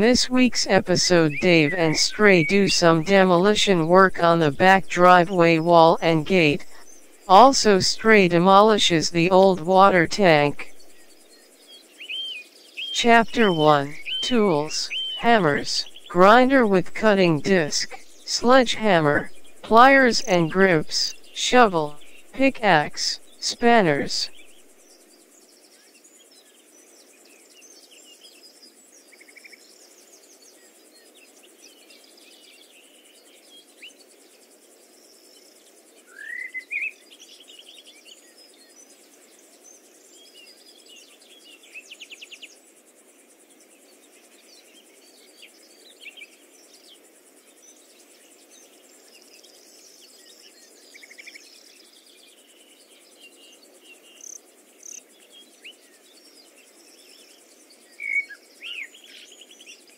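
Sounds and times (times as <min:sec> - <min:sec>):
faint steady background noise: 0:00.0 - 0:59.9
birds chirping and trilling: 0:14.0 - 0:14.2, 0:14.9 - 0:15.2.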